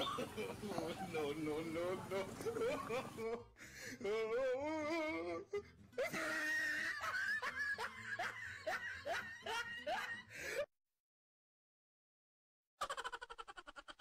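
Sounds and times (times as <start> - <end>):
person giggling: 6.0 - 10.3, 12.8 - 14.0.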